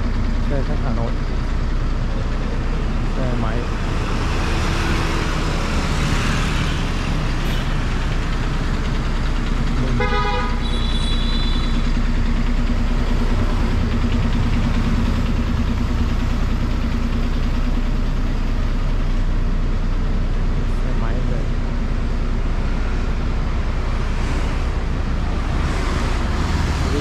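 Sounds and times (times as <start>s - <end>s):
traffic rumble: 0.0s - 27.0s
vehicle horn toot: 9.9s - 11.8s.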